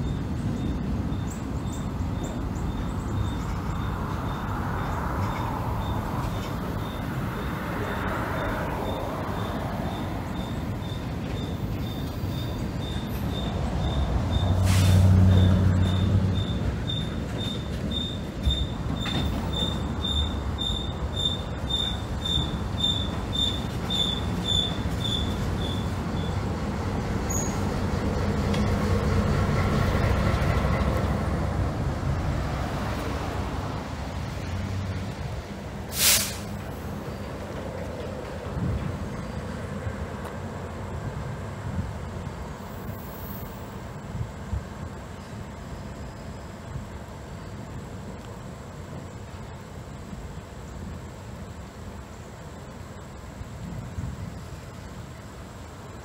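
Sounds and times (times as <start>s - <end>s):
wheels squealing: 0.0s - 26.4s, 27.2s - 27.8s
diesel locomotive engine: 0.0s - 56.0s
train wheels rumbling on rail: 0.0s - 56.0s.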